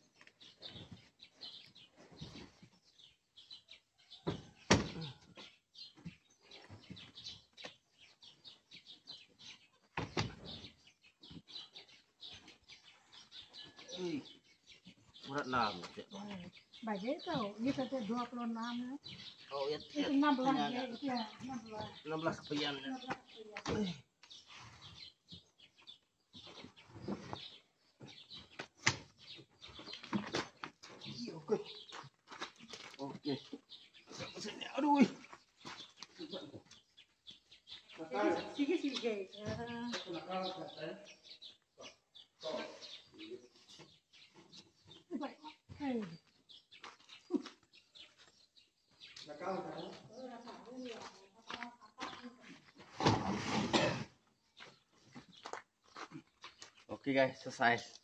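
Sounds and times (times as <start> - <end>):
small birds chirping: 0.0 - 58.0
heavy boxes sliding on truck bed: 52.9 - 53.9.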